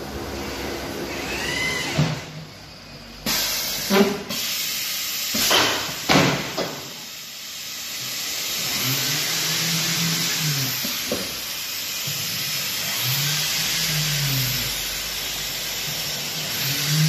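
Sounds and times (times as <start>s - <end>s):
pneumatic hissing bursts: 3.2s - 17.0s
gliding machine whine: 8.5s - 17.0s.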